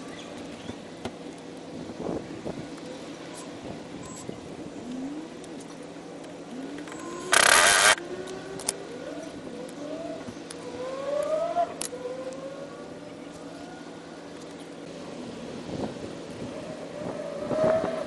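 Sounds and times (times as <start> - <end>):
sharp clicks: 6.8 - 8.8.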